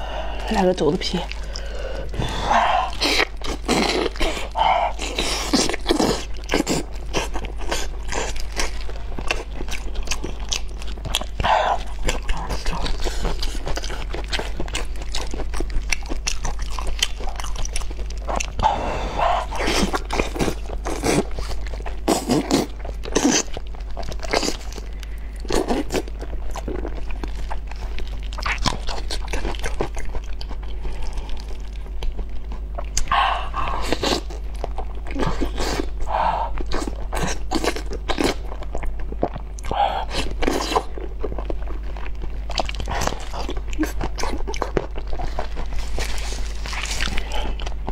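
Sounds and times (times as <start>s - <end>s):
mouth chewing and smacking: 1.1s - 47.9s.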